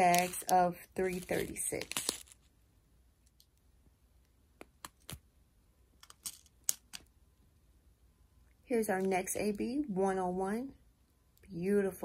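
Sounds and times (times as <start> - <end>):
plastic bags clicking and tapping: 0.0 - 2.3.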